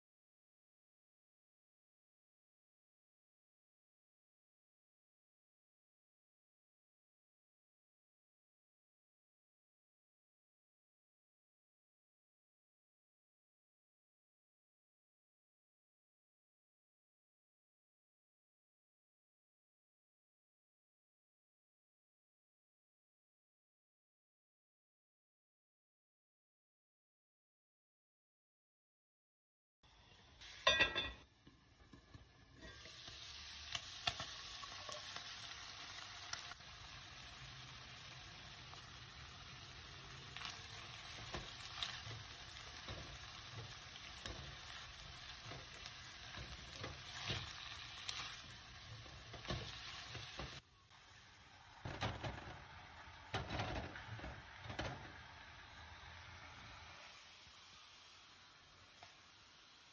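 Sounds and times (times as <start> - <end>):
meat sizzling in a pan: 29.9 - 59.9
spatula scraping a pan: 41.1 - 50.6.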